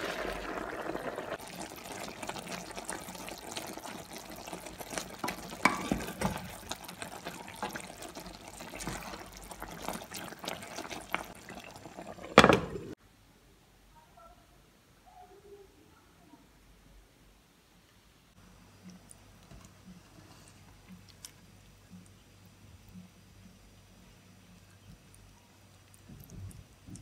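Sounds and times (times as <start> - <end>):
wooden spatula stirring: 0.0 - 12.2
food bubbling in a frying pan: 0.0 - 13.0, 24.7 - 27.0
glass lid clanking on pan: 5.3 - 6.4.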